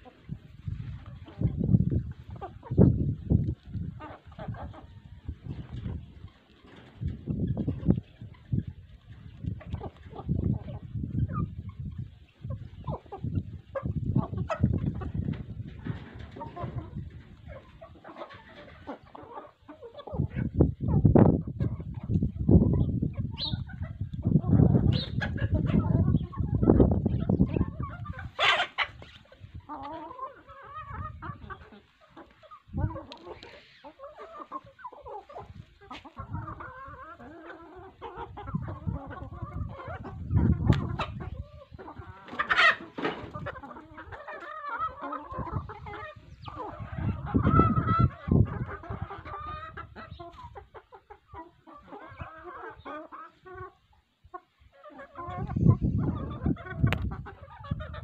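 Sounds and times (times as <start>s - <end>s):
hens clucking: 0.0s - 58.0s
microphone rumble: 55.4s - 57.2s.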